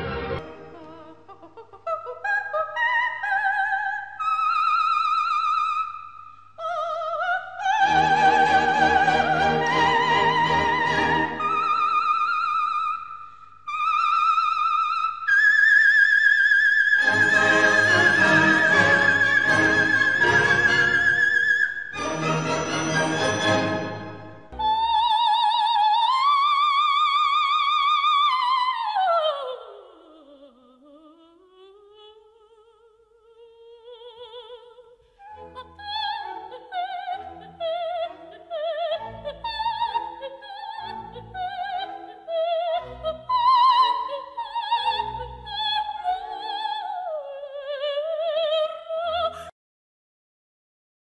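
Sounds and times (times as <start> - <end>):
orchestra playing: 0.0 - 1.0, 7.9 - 11.7, 17.0 - 21.4, 22.0 - 24.8
soprano singing opera: 0.4 - 6.0, 6.6 - 13.0, 13.7 - 49.5.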